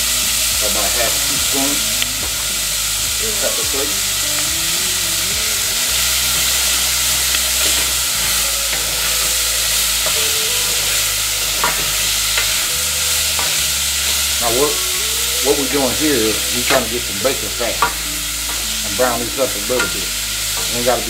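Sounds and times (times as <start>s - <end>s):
bacon sizzling in a pot: 0.0s - 21.0s
wooden spatula scraping a pot: 6.0s - 21.0s.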